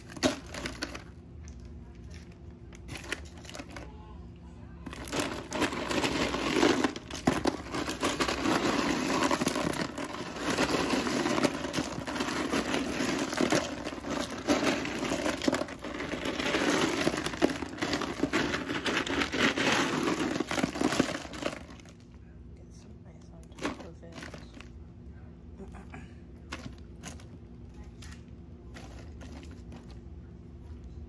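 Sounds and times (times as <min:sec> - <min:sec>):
plastic bags crinkling: 0:00.0 - 0:03.9, 0:04.8 - 0:22.1, 0:23.5 - 0:24.7, 0:28.0 - 0:30.0
ice cubes knocking: 0:04.9 - 0:21.8.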